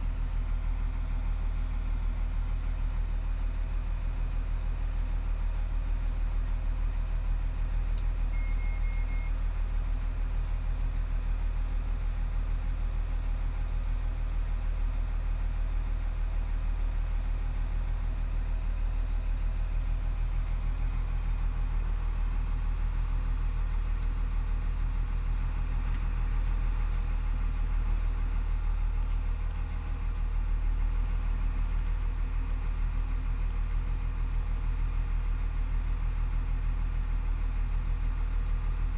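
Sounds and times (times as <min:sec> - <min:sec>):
diesel engine idling: 0:00.0 - 0:38.9
electronic beeps: 0:08.3 - 0:09.3.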